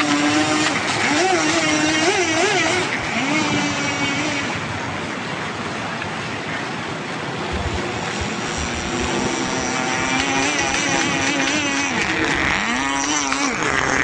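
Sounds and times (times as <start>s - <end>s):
model boat engine buzzing: 0.0s - 5.8s, 7.4s - 14.0s
water hissing: 7.6s - 14.0s.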